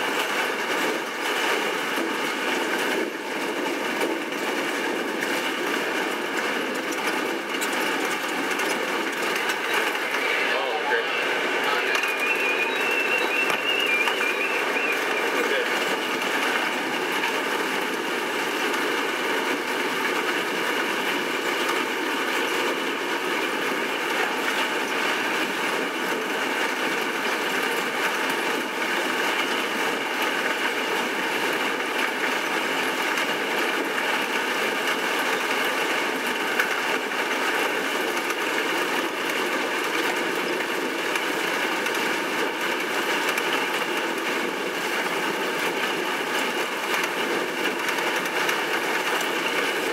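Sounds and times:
bus engine and road drone: 0.0 - 49.9
steady high tones: 9.2 - 16.8.

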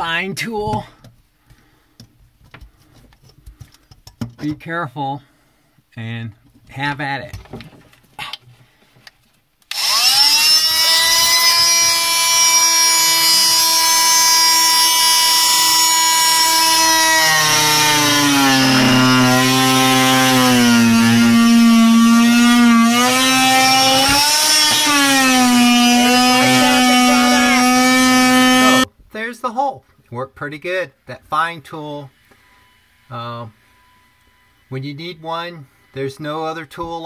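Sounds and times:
multi-tool cutting wood: 9.7 - 28.9
oscillating multi-tool whining: 9.7 - 28.9.

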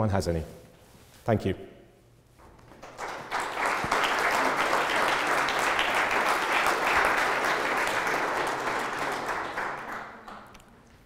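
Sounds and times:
audience applauding: 2.6 - 10.8.

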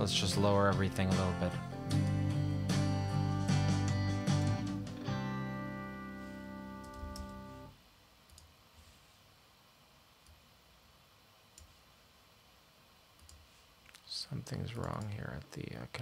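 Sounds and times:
faint clicks: 13.2 - 14.1.

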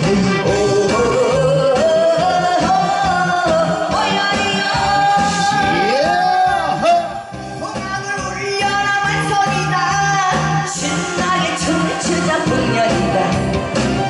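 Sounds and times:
woman singing into a microphone: 0.4 - 5.8, 7.8 - 13.5.

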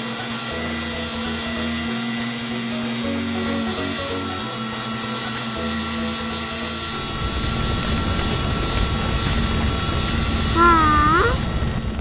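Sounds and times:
cartoon low rumble: 6.9 - 12.0
cartoon voice exclamation: 10.6 - 11.4.

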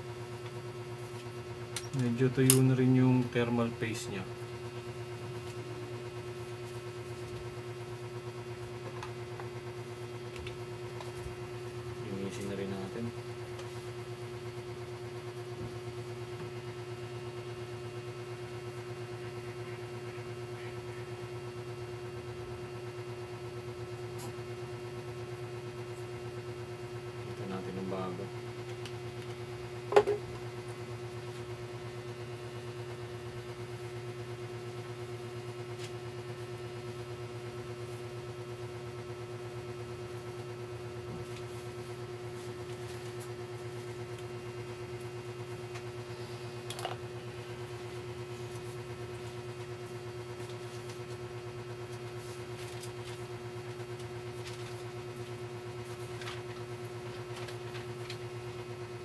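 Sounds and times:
steady electric hum: 0.0 - 59.0.

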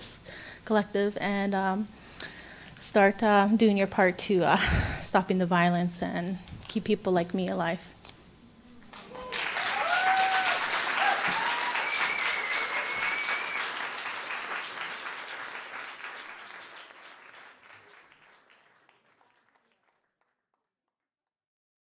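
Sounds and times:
audience applauding: 8.8 - 20.3
audience cheering: 8.9 - 18.4.

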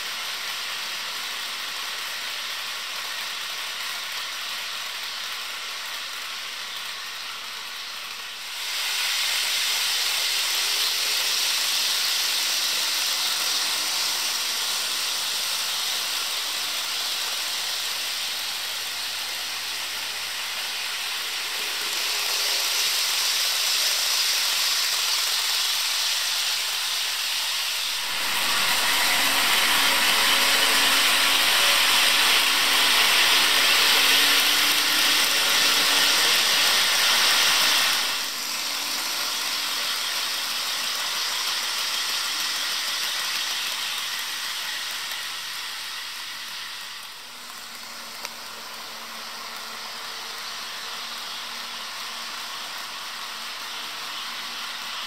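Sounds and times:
model train wheels hissing on rails: 0.0 - 55.0.

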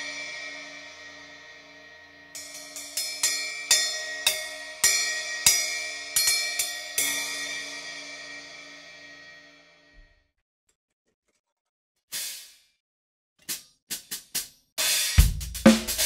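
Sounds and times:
cymbal ringing: 0.0 - 9.9.

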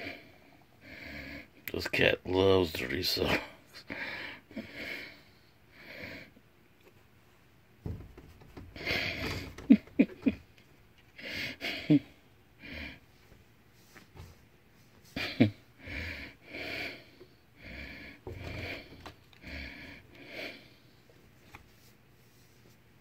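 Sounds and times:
person laughing softly through nose: 15.1 - 15.7.

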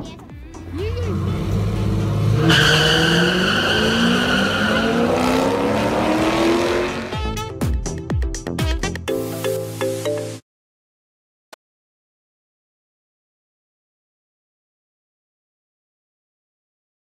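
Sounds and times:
car engine revving: 0.6 - 7.2.

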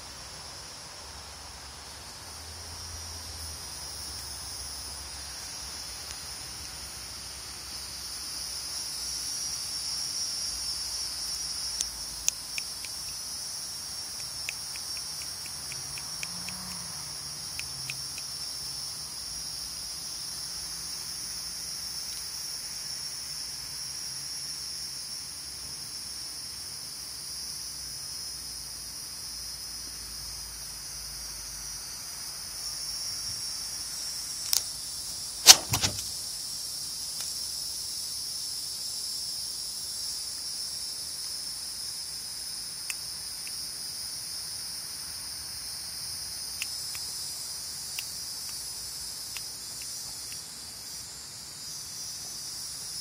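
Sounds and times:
high-pitched hiss: 0.0 - 53.0
faint ticks: 11.7 - 13.4, 14.0 - 18.4, 42.8 - 43.7, 49.3 - 50.5
sharp knock: 35.4 - 36.1.

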